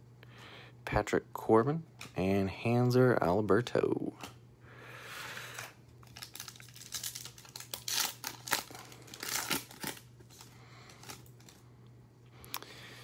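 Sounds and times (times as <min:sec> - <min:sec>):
foil wrapper crinkling: 0:05.5 - 0:11.6.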